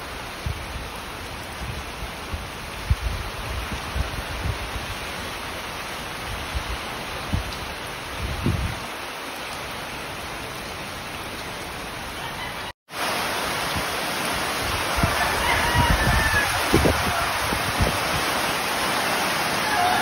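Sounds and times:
heavy rain pouring: 0.0s - 20.0s
wind buffeting microphone: 0.3s - 5.5s, 6.2s - 9.0s, 14.6s - 18.5s.

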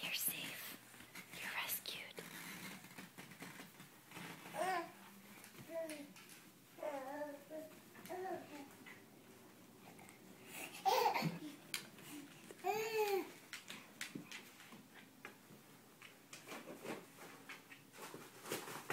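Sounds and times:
baby babbling: 6.8s - 8.7s, 12.6s - 13.3s.

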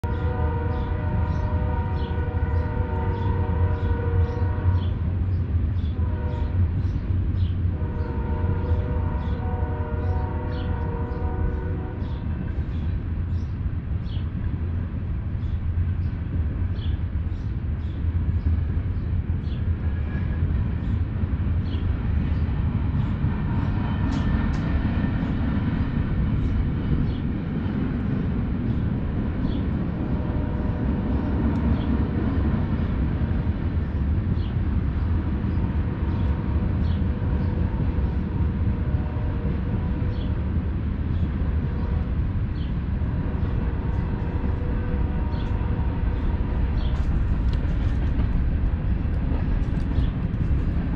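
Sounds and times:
train horn blasts: 0.0s - 5.1s, 5.8s - 12.6s, 30.0s - 31.9s, 36.1s - 40.4s, 43.0s - 47.8s
train rumble: 0.0s - 50.9s.

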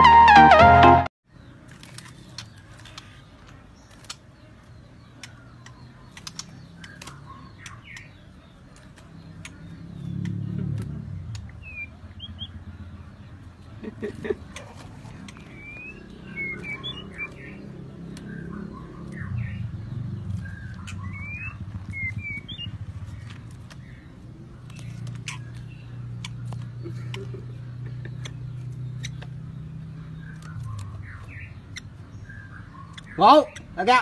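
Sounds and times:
birds chirping: 0.0s - 34.0s
sharp rising bird notes: 15.1s - 26.4s.

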